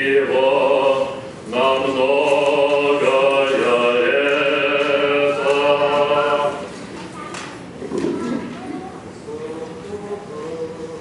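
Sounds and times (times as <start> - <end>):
choir singing a cappella: 0.0 - 6.7.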